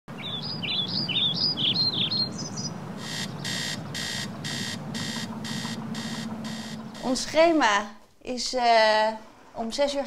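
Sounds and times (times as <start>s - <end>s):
songbird warbling: 0.1s - 7.4s
alarm clock beeping: 3.0s - 7.4s.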